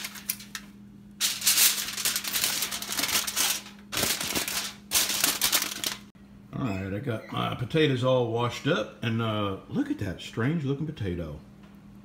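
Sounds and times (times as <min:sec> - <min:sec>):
aluminium foil crinkling: 0:00.0 - 0:06.1.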